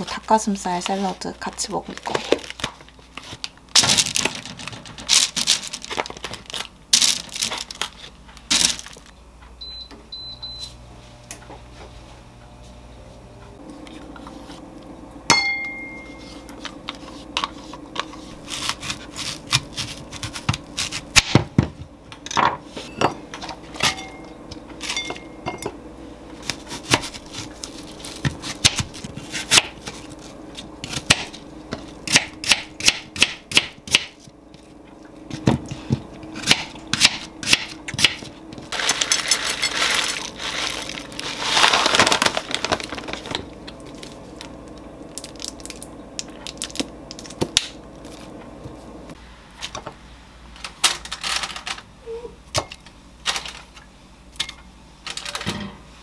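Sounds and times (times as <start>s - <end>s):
appliance hum: 0.0s - 56.0s
plastic bag crinkling: 1.4s - 9.1s, 38.7s - 44.5s.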